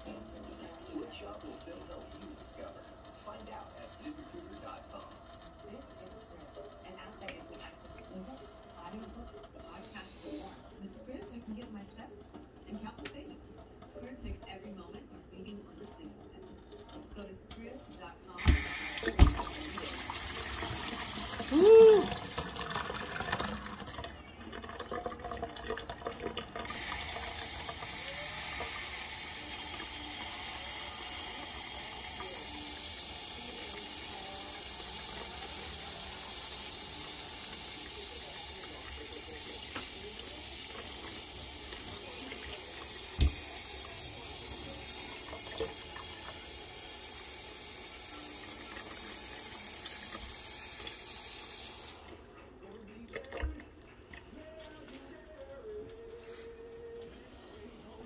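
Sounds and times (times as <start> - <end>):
tap running into steel sink: 43.1 - 43.6.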